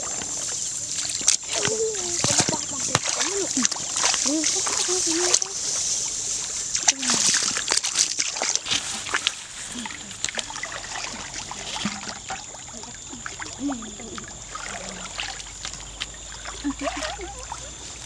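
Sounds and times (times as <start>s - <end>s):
splashing in shallow muddy water: 0.0s - 18.0s
girls' voices: 1.4s - 5.8s, 6.8s - 7.6s, 12.7s - 15.1s, 16.5s - 18.0s.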